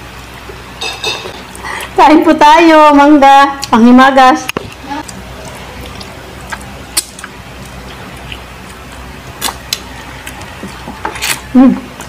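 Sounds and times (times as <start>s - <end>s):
low background hum: 0.0s - 12.0s
mouth clicks and smacks eating: 4.4s - 12.0s.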